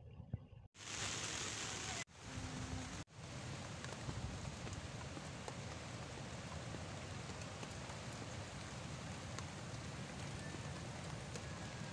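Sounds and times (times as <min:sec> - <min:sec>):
heavy rain: 0:00.8 - 0:11.9
raindrops ticking close by: 0:02.8 - 0:11.9.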